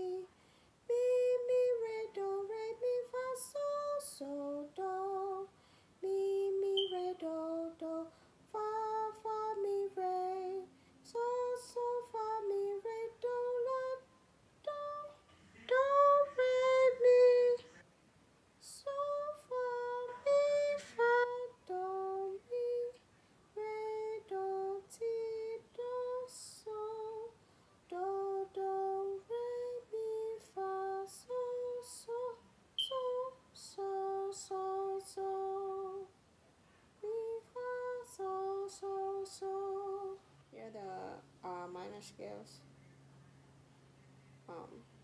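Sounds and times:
woman singing separate notes: 0.9 - 17.8, 27.9 - 36.1.

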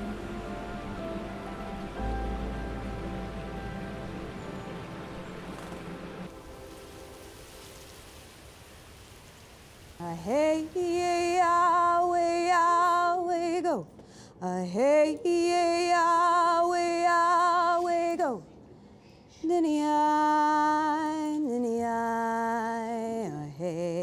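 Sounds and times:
faint music: 0.0 - 9.0
woman singing unaccompanied: 10.0 - 18.5, 19.4 - 24.0.

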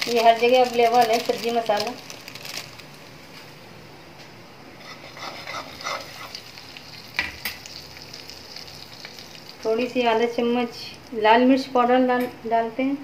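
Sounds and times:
spice powder sizzling in oil: 0.0 - 3.2, 4.8 - 11.3.

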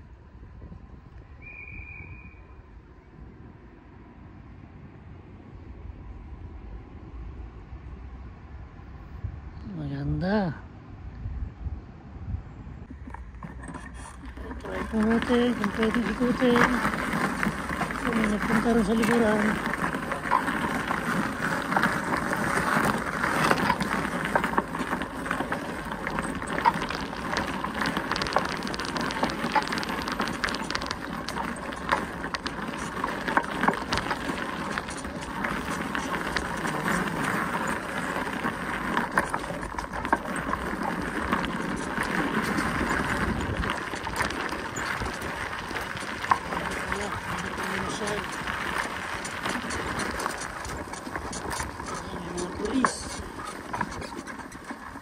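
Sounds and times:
bicycle tyres crunching on gravel: 12.9 - 55.0.

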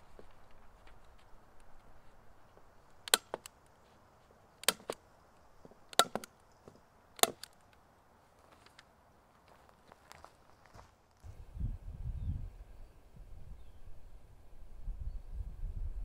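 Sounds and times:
stapler snapping: 4.6 - 5.0, 5.9 - 6.3, 7.2 - 7.6.

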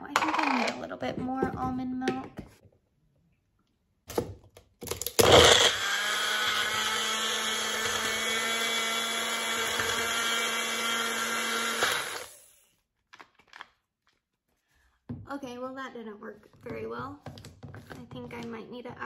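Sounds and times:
blender motor running: 5.0 - 12.6.

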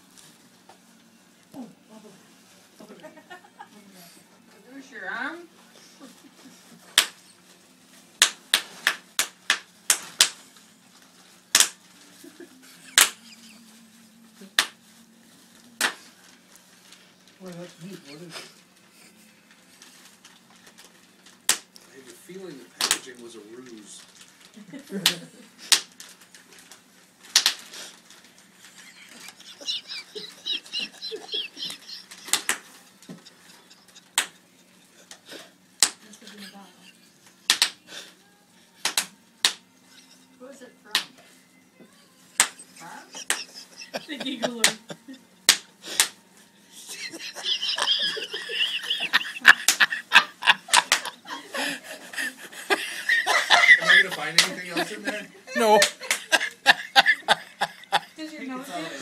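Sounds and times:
plastic wrapping crackling: 6.0 - 37.8
bubble wrap popping: 8.2 - 13.7, 24.0 - 29.6.

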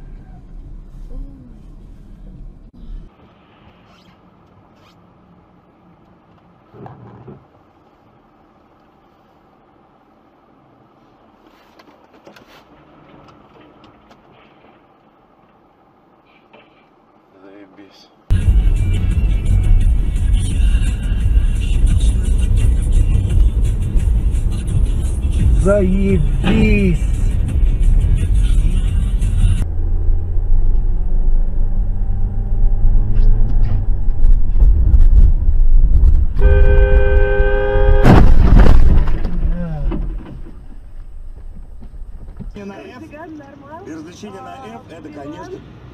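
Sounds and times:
car road and engine noise: 0.0 - 45.9
vehicle horn held: 36.4 - 38.2.

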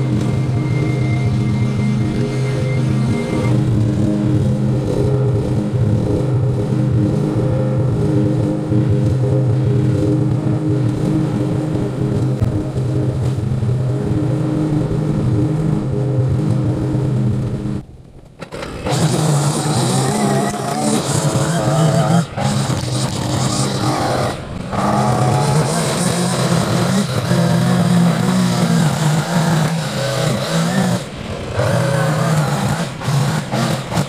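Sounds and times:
small gasoline engine running: 18.4 - 34.0.

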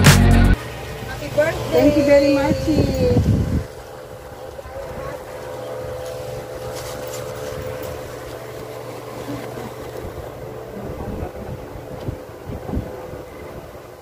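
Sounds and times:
low drone: 0.0 - 14.0
steady machine hum: 0.0 - 14.0
plastic bags rustling: 5.2 - 9.6.

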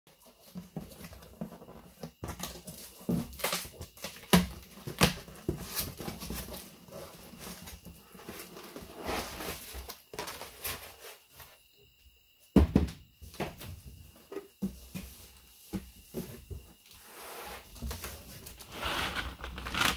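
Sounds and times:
cardboard box scraping and rustling: 0.2 - 11.3, 16.1 - 19.9.

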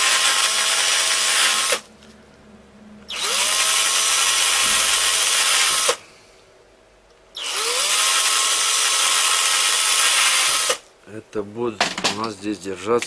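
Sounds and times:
electric drill whining: 0.0 - 1.9, 3.1 - 6.0, 7.4 - 10.8.

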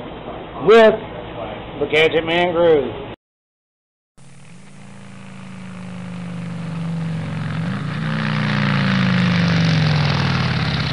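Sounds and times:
engine running: 4.2 - 10.9.

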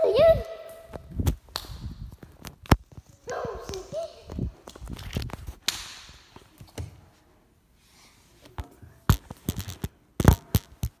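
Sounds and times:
phone rustling: 9.1 - 11.0.

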